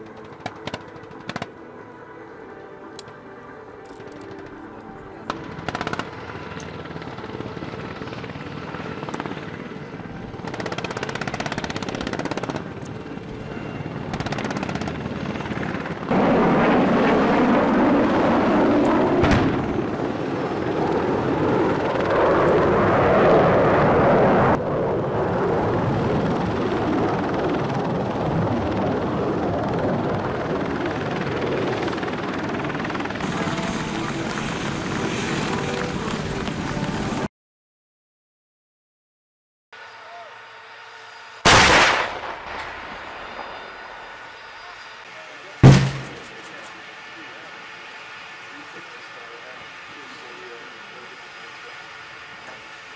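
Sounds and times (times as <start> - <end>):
helicopter rotor and turbine noise: 0.0 - 37.3, 39.8 - 52.9
explosion blast: 45.6 - 46.3.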